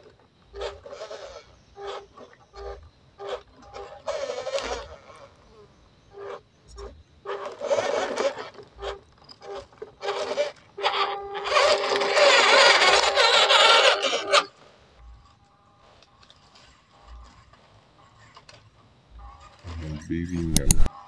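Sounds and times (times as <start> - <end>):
electric motor whirring: 0.0 - 21.0
tyres over dirt and leaves: 15.0 - 20.6.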